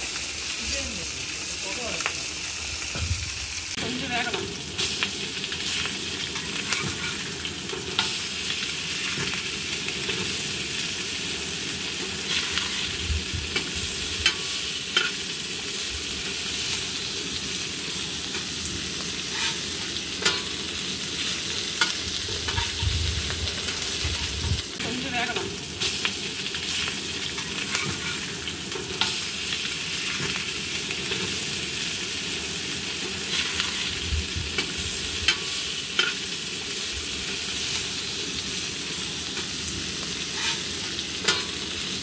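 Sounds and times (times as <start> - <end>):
fish sizzling in oil: 0.0 - 42.0
metal spatula scraping pan: 12.3 - 13.0, 19.2 - 20.5, 21.8 - 22.8, 27.4 - 28.3, 33.3 - 34.0, 40.3 - 41.5.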